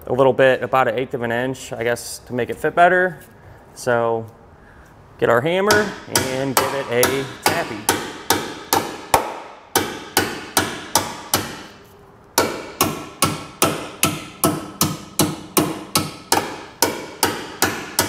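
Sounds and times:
hammer striking sheet steel: 0:05.7 - 0:11.8, 0:12.4 - 0:18.0.

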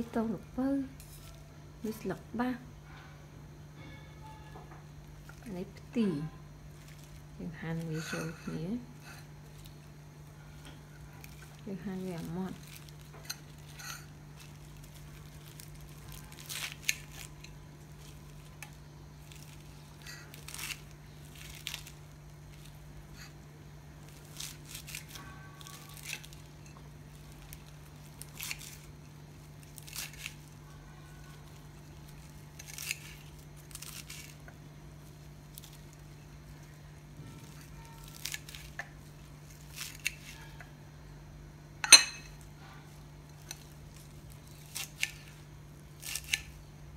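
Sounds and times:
faint steady hum: 0:00.0 - 0:46.9
leaves tearing and rustling: 0:01.0 - 0:02.1, 0:05.0 - 0:40.6, 0:42.9 - 0:46.7
scissors cutting leaves: 0:10.6 - 0:23.4, 0:24.0 - 0:34.5, 0:37.3 - 0:40.6, 0:43.4 - 0:45.4, 0:46.0 - 0:46.6.

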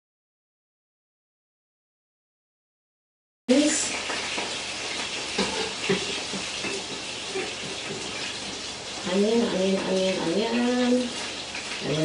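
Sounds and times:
oil sizzling in frying pan: 0:03.5 - 0:12.0.

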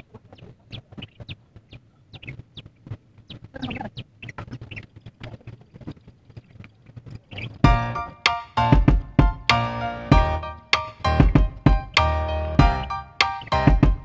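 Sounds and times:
animal clicking calls: 0:00.0 - 0:07.7.

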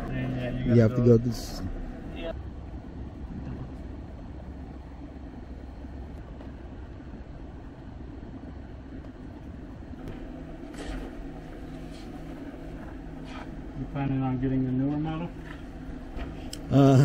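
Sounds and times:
low background hum: 0:00.0 - 0:17.0.

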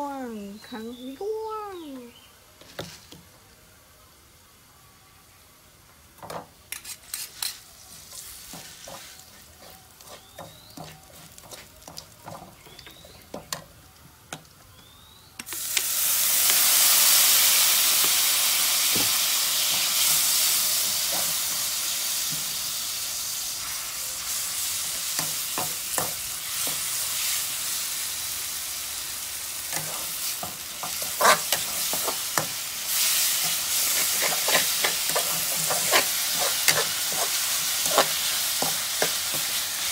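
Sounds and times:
food sizzling in oil: 0:06.2 - 0:14.0, 0:15.4 - 0:39.9
metal ladle scraping wok: 0:06.7 - 0:11.7, 0:29.7 - 0:39.8.

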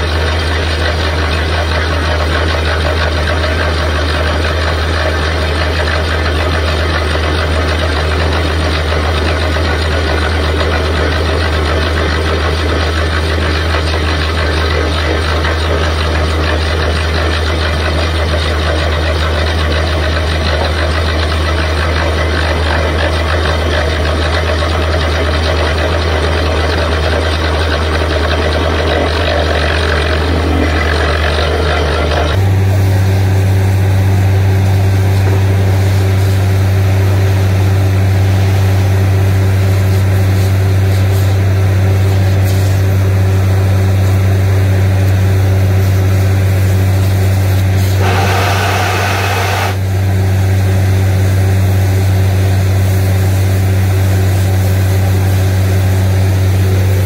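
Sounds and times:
drilling rig engine running: 0:00.0 - 0:57.0
rushing hiss of air: 0:47.9 - 0:49.8.

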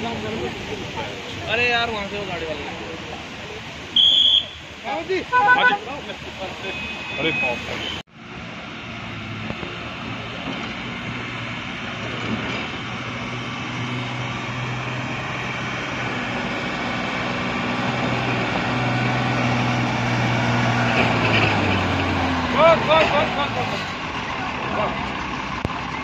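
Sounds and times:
diesel truck engine running: 0:08.2 - 0:26.0.

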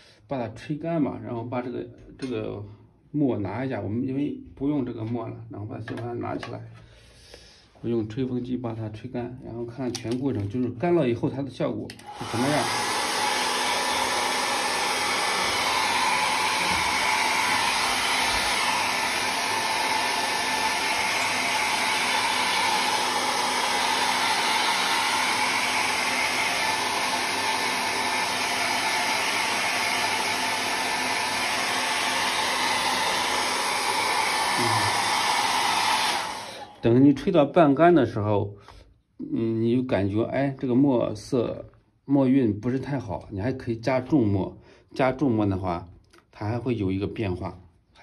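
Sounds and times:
hair dryer blowing: 0:11.9 - 0:37.0.

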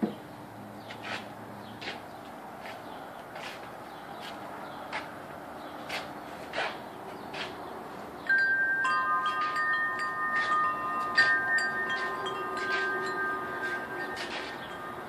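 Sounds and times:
metal wind chime ringing: 0:08.2 - 0:15.0.

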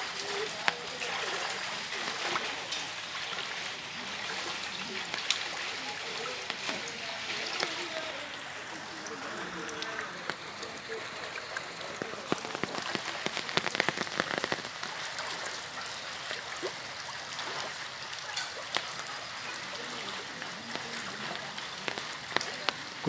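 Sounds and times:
heavy rain falling: 0:00.0 - 0:23.0.

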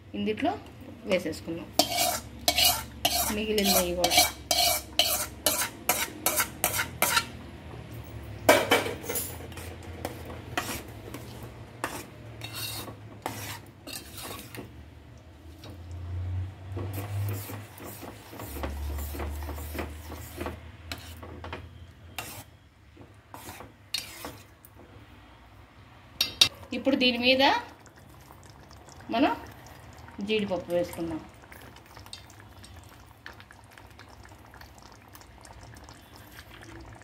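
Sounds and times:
spoon clinking and scraping pot: 0:01.8 - 0:07.3, 0:08.5 - 0:14.6, 0:22.1 - 0:22.5, 0:23.3 - 0:24.5.

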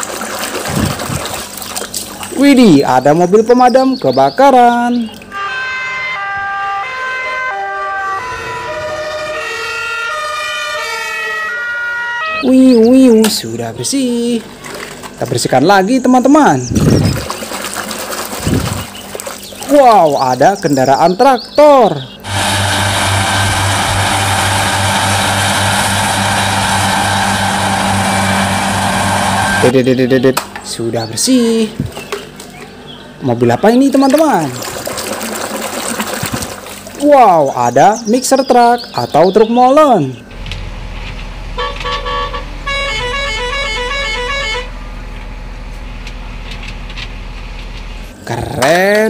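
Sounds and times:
two-tone fire engine sirens: 0:05.2 - 0:12.8, 0:41.6 - 0:45.0
mower hiss: 0:22.2 - 0:29.7
tractor engine drone: 0:22.2 - 0:30.3, 0:40.2 - 0:48.6.

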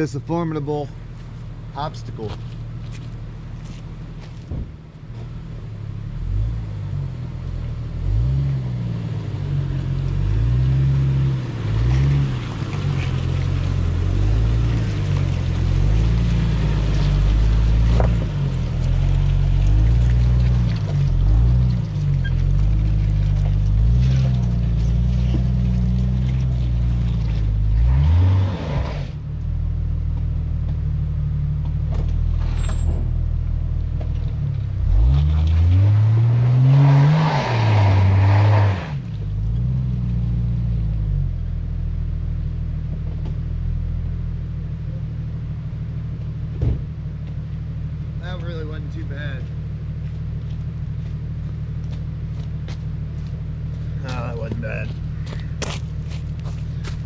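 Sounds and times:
engine revving under load: 0:06.2 - 0:29.2, 0:34.7 - 0:41.3.

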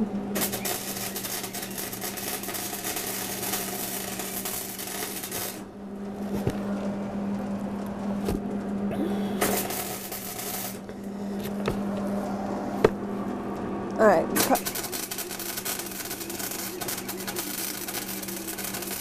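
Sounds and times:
welding arc crackling: 0:00.0 - 0:06.4, 0:08.9 - 0:11.3, 0:14.4 - 0:19.0
low steady hum: 0:00.0 - 0:18.9.

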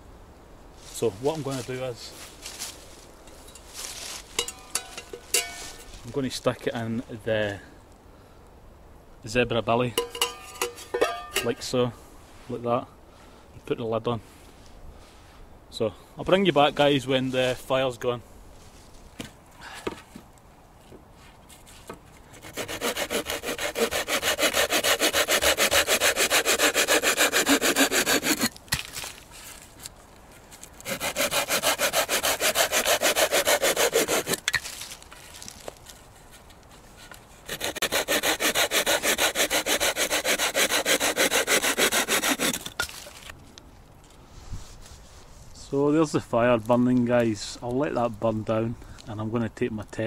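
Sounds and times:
hand saw cutting branch: 0:22.3 - 0:29.0, 0:30.8 - 0:35.6, 0:37.4 - 0:43.3.

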